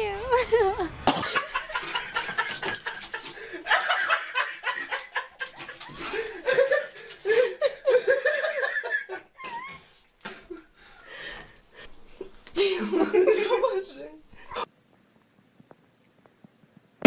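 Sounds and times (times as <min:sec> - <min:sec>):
person laughing: 0:00.3 - 0:09.8.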